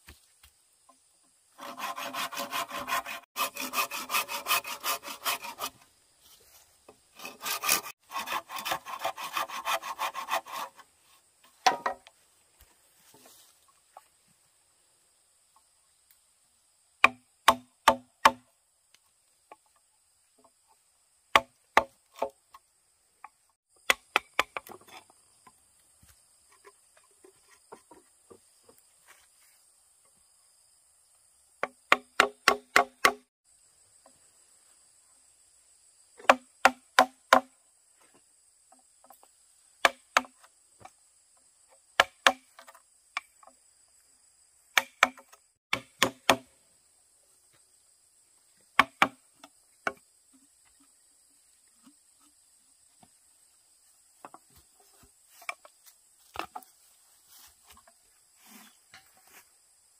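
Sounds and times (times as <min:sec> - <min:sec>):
insects buzzing: 0:00.0 - 0:59.9
blade chopping bamboo: 0:07.2 - 0:10.8, 0:17.0 - 0:18.5, 0:21.3 - 0:22.4, 0:31.6 - 0:33.3, 0:36.2 - 0:37.6, 0:39.8 - 0:40.4, 0:42.0 - 0:42.7, 0:44.8 - 0:46.5, 0:48.8 - 0:49.2.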